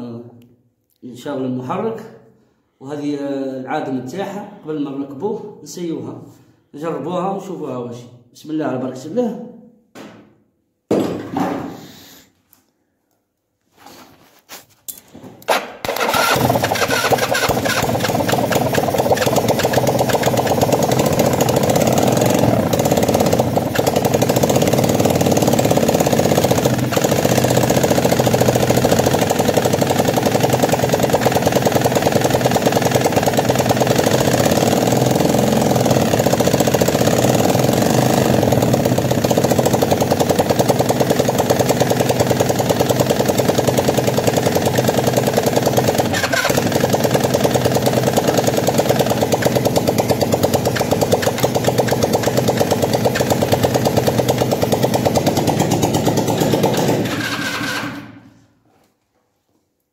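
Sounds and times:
engine cranking clicks: 0:15.5 - 0:20.6, 0:46.0 - 0:46.8, 0:50.7 - 0:53.4, 0:56.5 - 0:58.1
motorcycle engine running loudly: 0:15.9 - 0:58.2.

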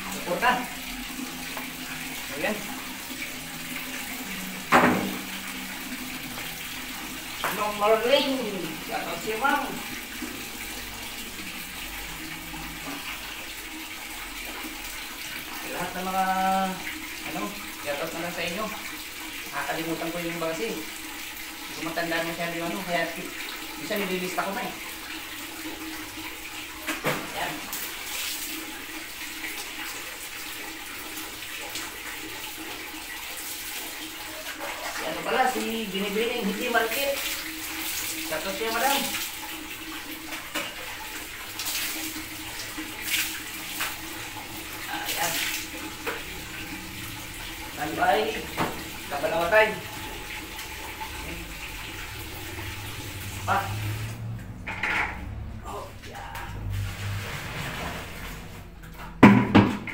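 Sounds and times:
water pouring from tap: 0:00.0 - 0:59.9
plastic bucket clattering: 0:59.1 - 0:59.9.

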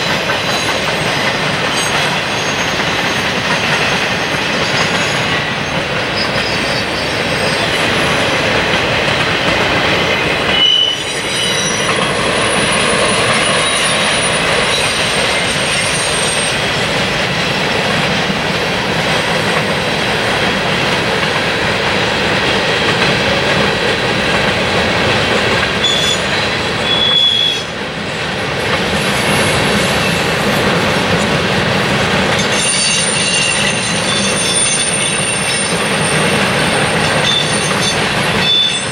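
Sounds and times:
train wheels rumbling on track: 0:00.0 - 0:38.9
high-pitched wheel squeals: 0:10.5 - 0:16.6, 0:25.8 - 0:27.7, 0:32.5 - 0:36.3, 0:37.2 - 0:38.9.

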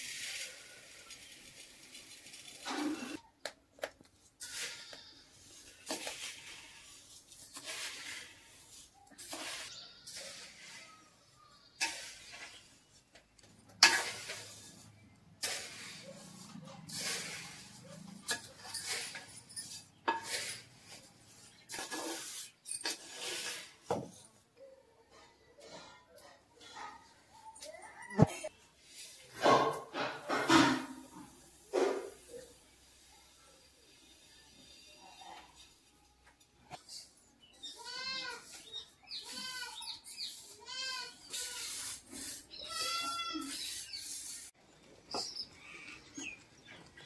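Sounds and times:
scraping strokes: 0:04.3 - 0:23.9, 0:38.0 - 0:44.6.

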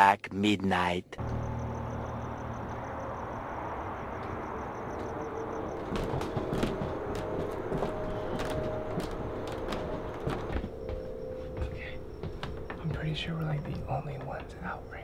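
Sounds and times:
footsteps: 0:04.2 - 0:14.8.

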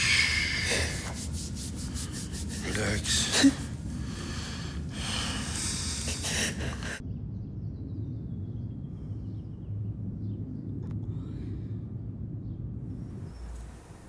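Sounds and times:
bedclothes rustling: 0:00.0 - 0:07.0
low room hum: 0:00.0 - 0:14.0.

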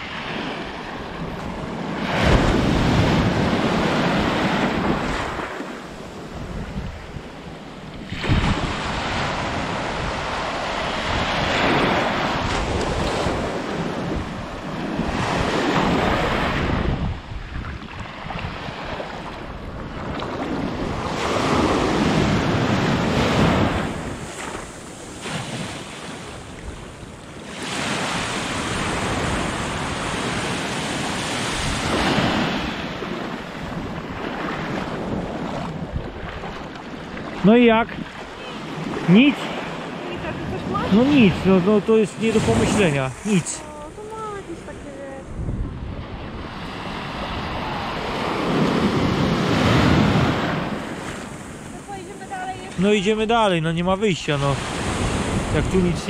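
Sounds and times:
surf breaking on beach: 0:00.0 - 0:19.5, 0:20.1 - 0:56.0
wind buffeting microphone: 0:00.0 - 0:53.2, 0:54.6 - 0:56.0.

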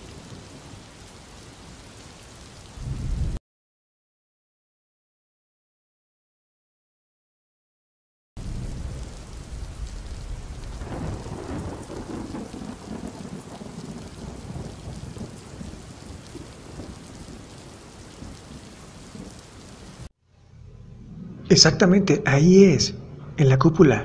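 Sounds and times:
steady rain: 0:00.0 - 0:03.4, 0:08.4 - 0:20.1
rolling thunder: 0:02.7 - 0:03.4, 0:08.4 - 0:20.1.

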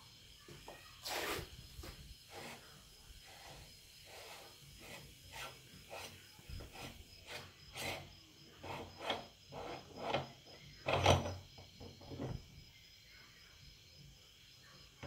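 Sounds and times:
meat grinder rasping scrape: 0:02.3 - 0:10.3.

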